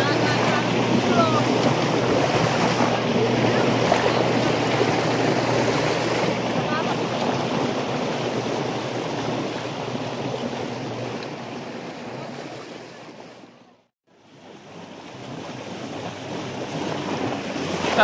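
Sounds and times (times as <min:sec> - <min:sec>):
wind noise on microphone: 0:00.0 - 0:11.2
water washing around boat: 0:00.0 - 0:18.0.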